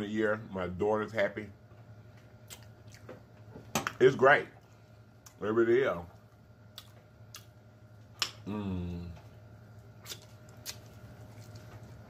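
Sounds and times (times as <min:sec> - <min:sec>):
lip smacks and wet mouth clicks: 0:02.5 - 0:03.1
person humming: 0:08.4 - 0:09.3.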